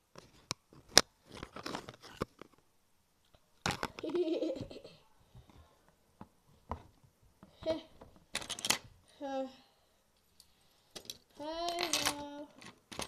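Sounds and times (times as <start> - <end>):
crunching and rustling handling: 0.2 - 2.6.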